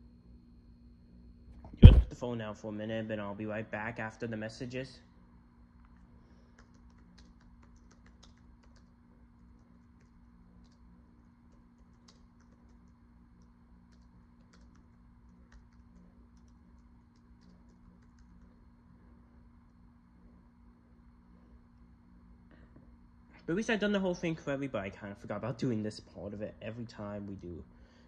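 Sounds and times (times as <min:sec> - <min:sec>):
low steady hum: 0:00.0 - 0:28.0
typing on a keyboard: 0:06.5 - 0:10.8, 0:11.5 - 0:18.6.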